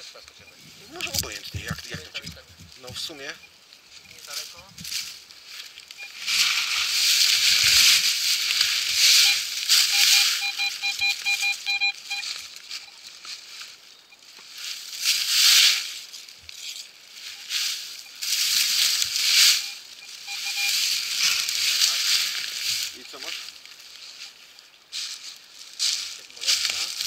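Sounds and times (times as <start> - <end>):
metal detector beeps: 0.0 - 4.6, 5.9 - 8.0, 8.7 - 13.1, 16.5 - 23.2, 24.1 - 24.4
dry leaves rustling and crunching: 4.2 - 27.0.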